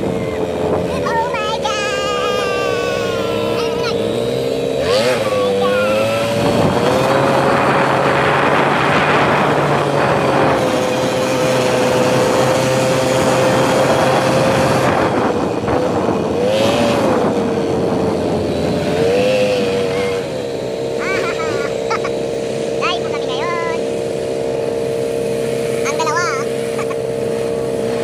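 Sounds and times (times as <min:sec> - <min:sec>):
quad bike engine running: 0:00.0 - 0:28.0
wind across microphone: 0:05.1 - 0:20.4.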